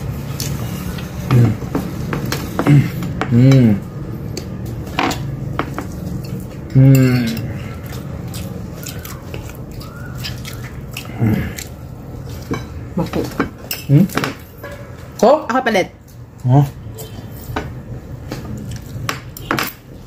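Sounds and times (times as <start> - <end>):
person humming mm: 2.6 - 3.9, 6.7 - 7.6
chewing and mouth noises: 3.6 - 15.2.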